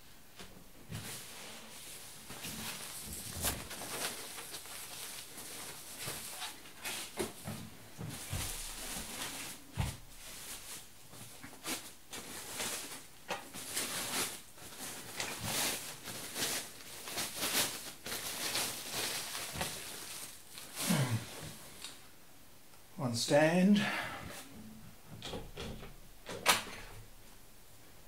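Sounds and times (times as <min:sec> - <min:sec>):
plastic bag and foam rustling: 0:00.8 - 0:22.0.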